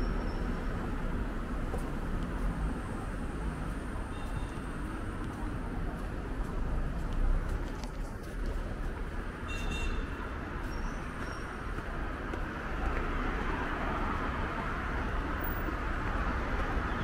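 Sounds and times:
street traffic rumble: 0:00.0 - 0:17.0.

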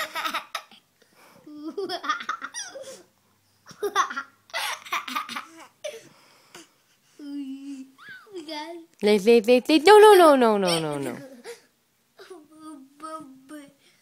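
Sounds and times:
baby laughing: 0:00.0 - 0:00.8
young children laughing: 0:01.5 - 0:03.1, 0:03.7 - 0:06.1, 0:10.6 - 0:12.4.

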